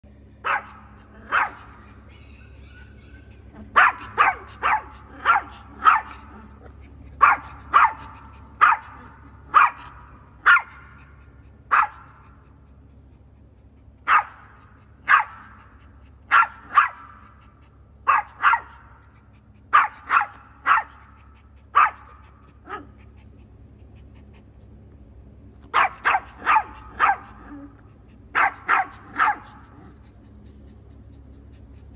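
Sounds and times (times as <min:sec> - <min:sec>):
small dog barking: 0:00.4 - 0:02.4, 0:03.2 - 0:12.3, 0:14.0 - 0:17.4, 0:18.0 - 0:19.1, 0:19.7 - 0:23.0, 0:25.7 - 0:30.0.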